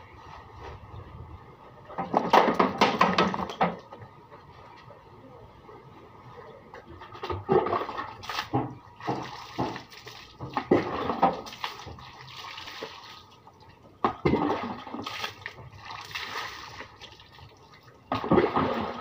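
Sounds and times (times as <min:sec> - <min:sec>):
water pouring and splashing: 0:07.2 - 0:19.0.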